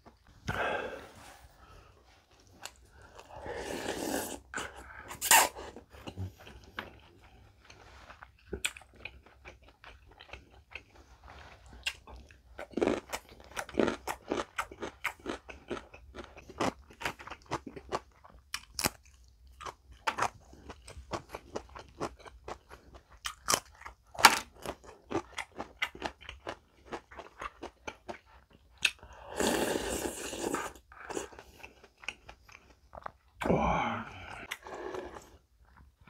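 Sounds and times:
breathy rush: 0:00.5 - 0:02.0, 0:33.4 - 0:34.5
crunchy chewing: 0:04.2 - 0:29.1.

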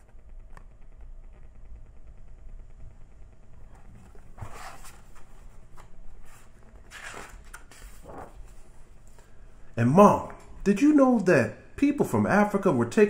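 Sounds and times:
book pages rustling: 0:03.9 - 0:09.3.

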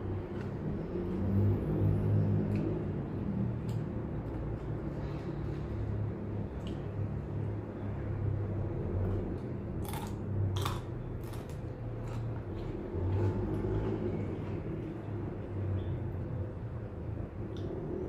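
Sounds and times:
crunchy bites into bean: 0:09.8 - 0:12.3
chewing: 0:09.8 - 0:14.6.

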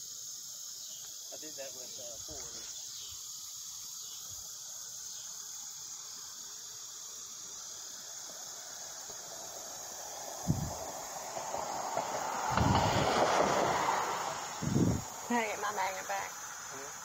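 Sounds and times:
insect chorus chirring: 0:00.0 - 0:17.0.

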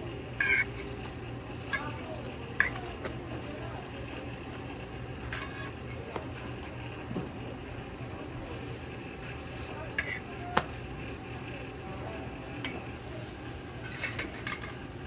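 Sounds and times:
food sizzling in oil: 0:00.0 - 0:15.0
spatula clinking on griddle: 0:00.4 - 0:01.0, 0:01.7 - 0:02.9, 0:05.3 - 0:05.8, 0:09.9 - 0:10.2, 0:13.8 - 0:14.8
metal clack on griddle: 0:00.4 - 0:03.2, 0:05.2 - 0:06.8, 0:09.9 - 0:10.8, 0:13.8 - 0:14.8.

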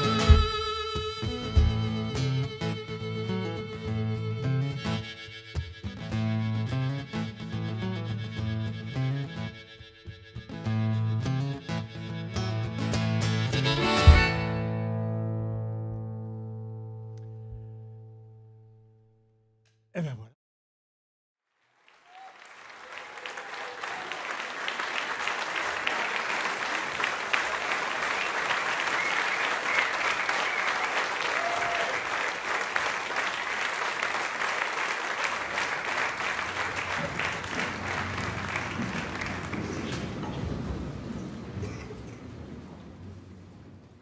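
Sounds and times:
audience applauding: 0:21.6 - 0:43.0.

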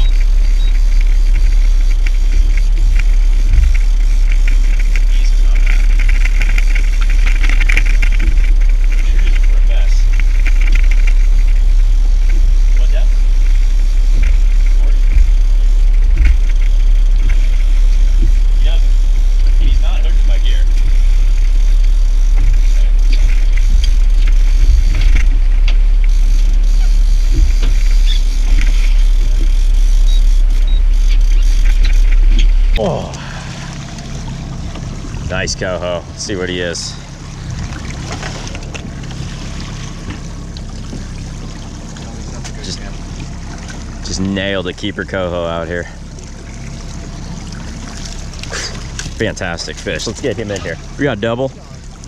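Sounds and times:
light flickering rattle: 0:00.0 - 0:32.8
outboard motor running: 0:00.0 - 0:52.0
wind on microphone: 0:22.3 - 0:32.8.

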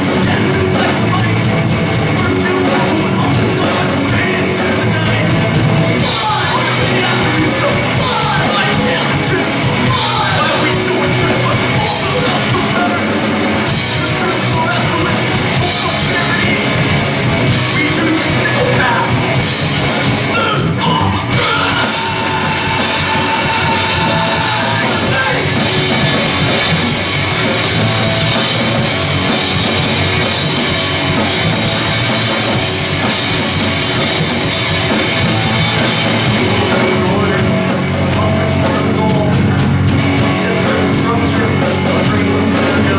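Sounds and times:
punk band playing live: 0:00.0 - 0:42.9
shouted vocals: 0:06.0 - 0:13.2, 0:20.2 - 0:28.6, 0:34.6 - 0:39.3.

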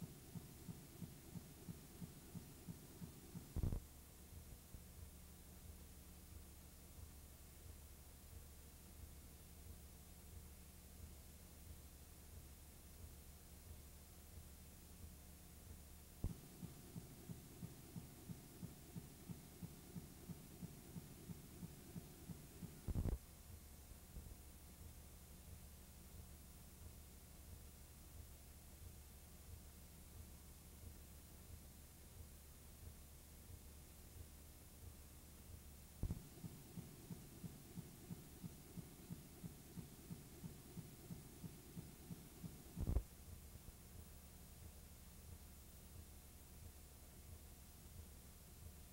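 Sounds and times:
faint low thumps: 0:00.0 - 0:29.6, 0:32.2 - 0:48.8
faint low hum: 0:00.0 - 0:48.9
steady low ticking: 0:00.0 - 0:48.9
low hum: 0:36.0 - 0:43.8.

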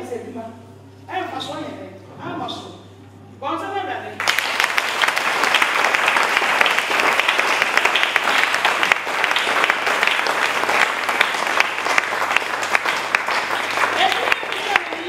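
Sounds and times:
crowd applauding: 0:04.2 - 0:15.0.

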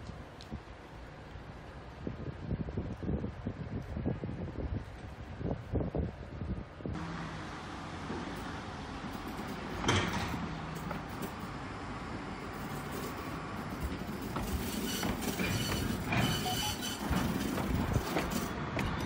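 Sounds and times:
tram wheels on rails: 0:07.0 - 0:19.0.

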